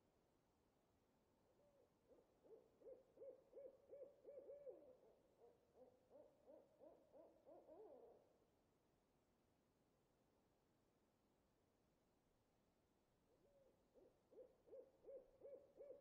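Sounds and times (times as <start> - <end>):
owl hooting: 13.4 - 16.0.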